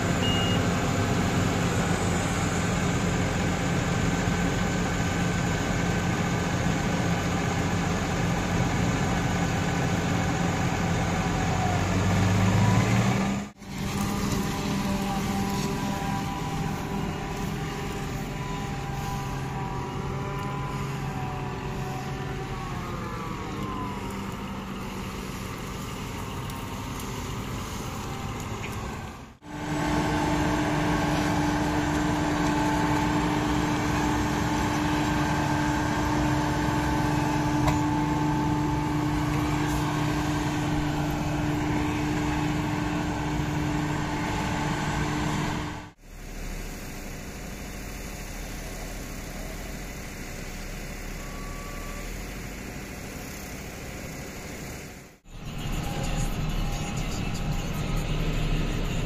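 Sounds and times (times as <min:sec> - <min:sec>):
high machine hum: 0:13.6 - 0:28.4, 0:29.4 - 0:59.0.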